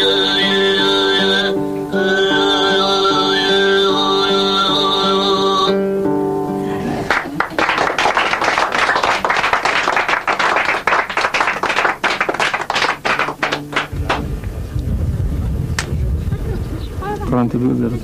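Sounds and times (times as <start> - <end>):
boy singing: 0.0 - 5.8
group clapping: 7.0 - 14.5.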